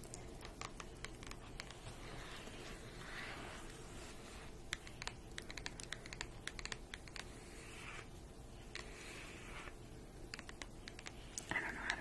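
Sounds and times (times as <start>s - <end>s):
scratching on paper: 0.4s - 12.0s
fingernails tapping on paper: 4.7s - 7.3s.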